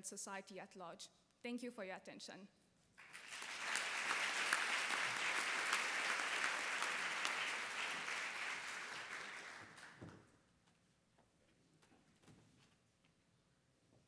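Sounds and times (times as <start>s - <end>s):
audience applauding: 3.0s - 10.3s.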